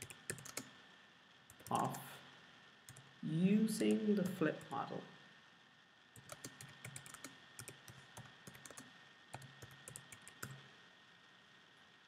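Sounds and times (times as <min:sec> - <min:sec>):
faint computer keyboard typing: 0:00.0 - 0:00.8, 0:01.5 - 0:02.0, 0:02.9 - 0:03.1, 0:06.2 - 0:10.7.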